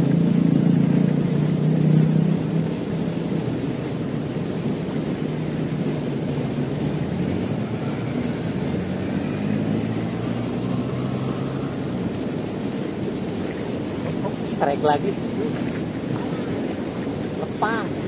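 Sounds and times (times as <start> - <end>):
fast-flowing river rushing: 0.0 - 18.0.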